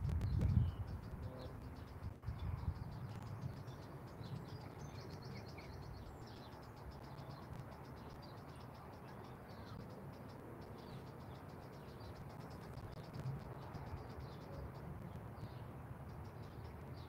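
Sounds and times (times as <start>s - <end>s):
faint low rumble: 0.0s - 6.4s
small birds chirping: 0.0s - 17.0s.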